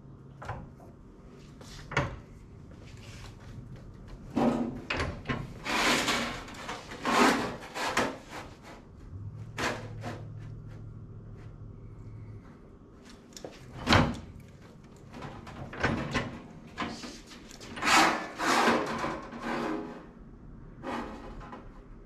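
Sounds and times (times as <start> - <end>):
sheet metal scraping: 4.3 - 10.7, 16.2 - 21.7.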